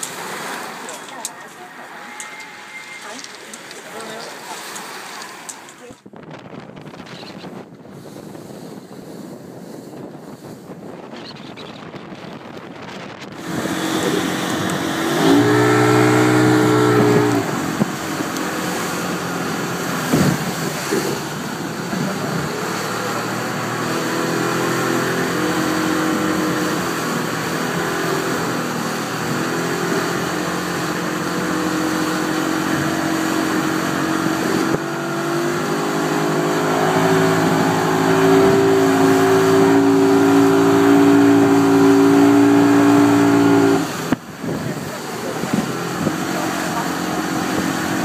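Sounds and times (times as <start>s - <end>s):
rush of wake and spray: 0.0s - 6.0s, 7.8s - 48.0s
outboard motor running at speed: 0.0s - 48.0s.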